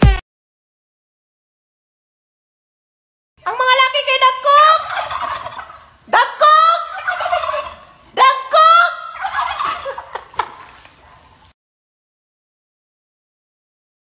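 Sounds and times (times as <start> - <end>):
turkey gobbling: 3.4 - 11.5.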